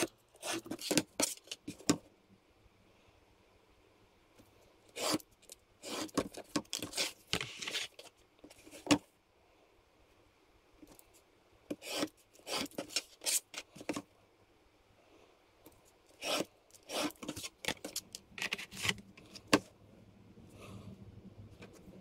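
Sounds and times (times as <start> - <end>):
knife slicing foam board: 5.0 - 5.2, 5.8 - 7.9, 11.7 - 13.4, 16.2 - 19.0.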